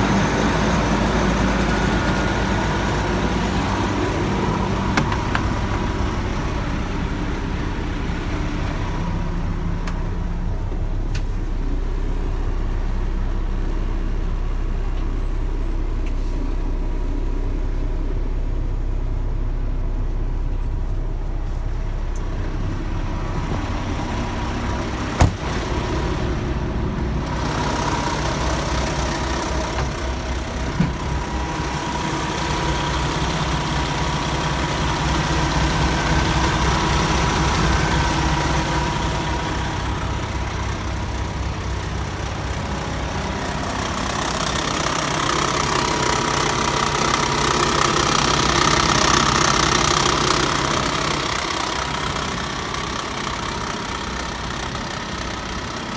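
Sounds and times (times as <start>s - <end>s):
diesel truck engine idling: 0.0s - 55.9s.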